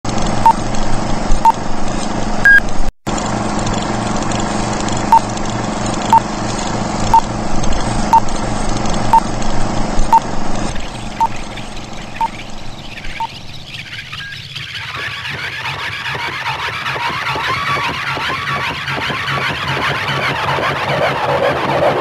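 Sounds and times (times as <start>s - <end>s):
steady low hum: 0.1s - 14.6s
short electronic beeps: 2.4s - 2.7s, 12.2s - 12.4s.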